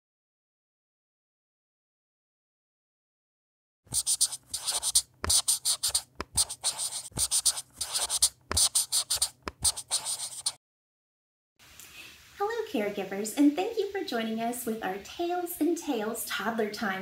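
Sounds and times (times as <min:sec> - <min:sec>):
pen scratching on paper: 0:03.9 - 0:10.6.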